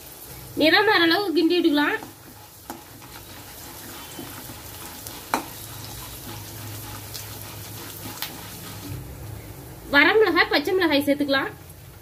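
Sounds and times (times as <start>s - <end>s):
food sizzling in hot oil: 0.0s - 12.0s
metal ladle stirring: 1.8s - 9.0s.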